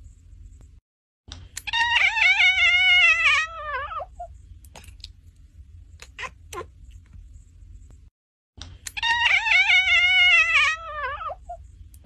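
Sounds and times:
cat meowing: 1.7 - 4.2, 9.0 - 11.6.

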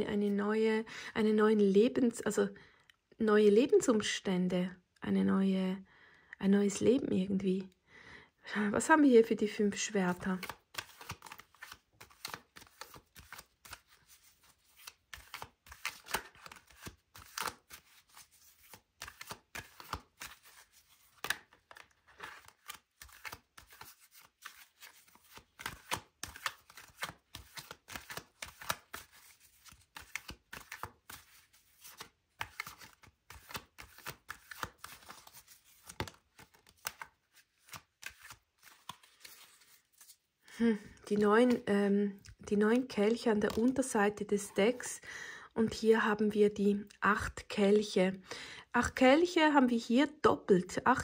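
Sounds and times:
cards being shuffled: 10.1 - 43.9.

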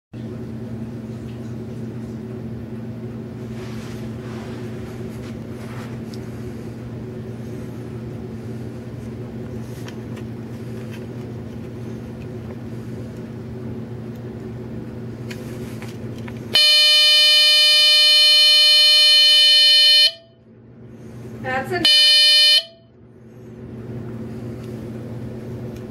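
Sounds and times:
steady low hum: 0.2 - 25.9
buzzy alarm tone: 16.6 - 20.3, 21.8 - 22.8.

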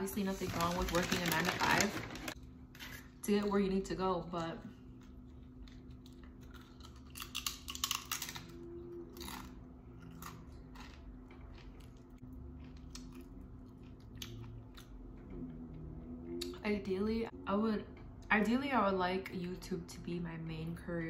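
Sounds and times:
crunching tortilla chip: 5.5 - 14.9.

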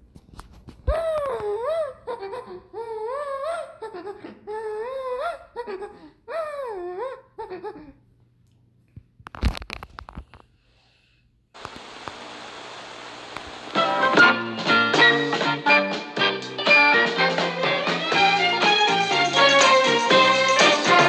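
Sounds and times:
person giggling and squealing: 0.8 - 8.0.

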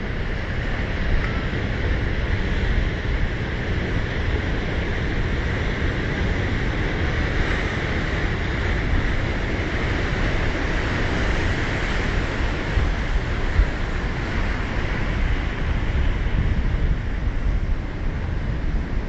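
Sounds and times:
wind rumbling on microphone: 0.0 - 19.0
ocean surf breaking on rocks: 0.2 - 19.0.

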